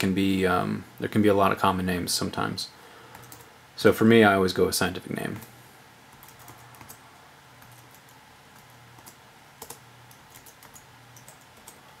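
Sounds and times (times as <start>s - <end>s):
faint low hum: 0.0s - 12.0s
typing on computer keyboard: 3.1s - 3.5s, 6.1s - 7.0s, 7.6s - 11.8s.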